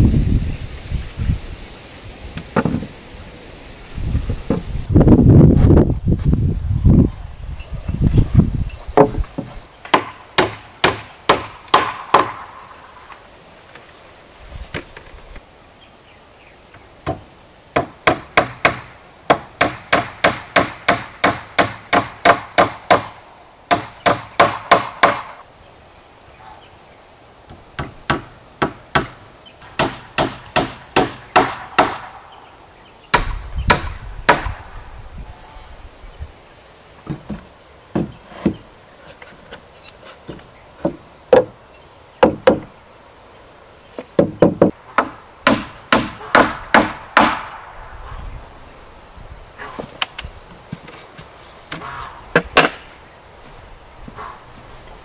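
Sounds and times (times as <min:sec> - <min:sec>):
claw hammer nailing wood: 0:09.0 - 0:12.4, 0:17.0 - 0:25.3, 0:27.5 - 0:29.2, 0:29.8 - 0:32.1, 0:33.1 - 0:34.6, 0:42.2 - 0:42.7, 0:44.2 - 0:47.6.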